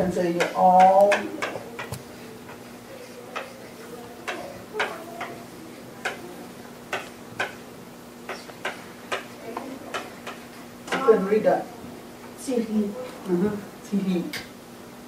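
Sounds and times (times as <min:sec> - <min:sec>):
chalk tapping on blackboard: 0:04.2 - 0:05.4, 0:08.3 - 0:11.0.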